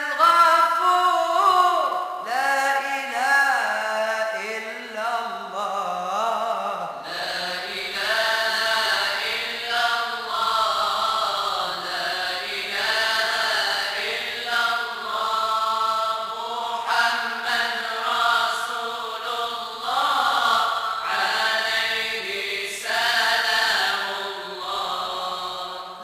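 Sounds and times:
voices chanting: 0:07.1 - 0:26.0.

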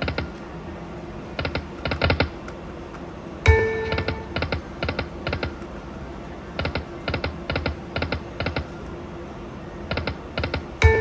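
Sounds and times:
slot machine ticks: 0:03.5 - 0:04.6.

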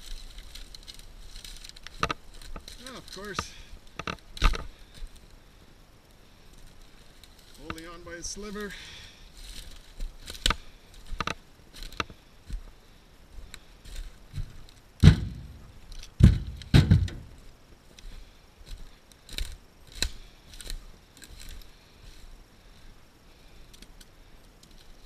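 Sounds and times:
footsteps crackling through dry brush: 0:00.0 - 0:25.0
firewood thudding into trailer: 0:15.0 - 0:15.6, 0:16.2 - 0:17.4.

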